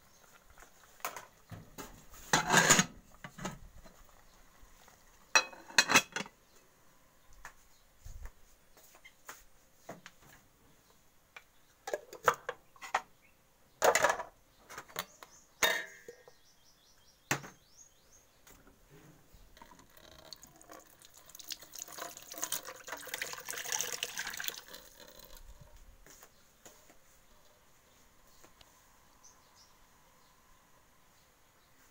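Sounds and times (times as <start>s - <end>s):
pots and utensils knocking: 2.3s - 3.6s, 5.4s - 6.3s, 15.6s - 16.3s
water running: 19.6s - 25.4s.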